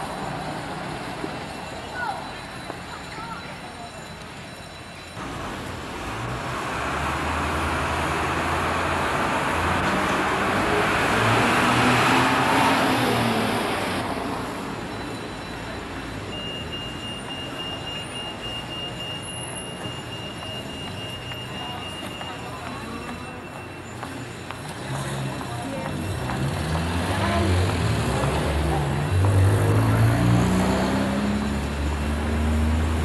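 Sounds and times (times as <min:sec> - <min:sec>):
motor vehicle passing by: 0:06.1 - 0:14.0, 0:26.1 - 0:33.0.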